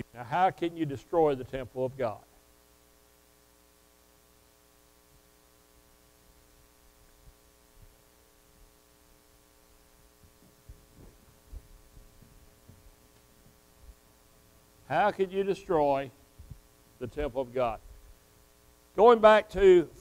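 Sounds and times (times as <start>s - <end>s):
electrical hum: 0.0s - 20.0s
faint low bumps and knocks: 10.2s - 14.0s.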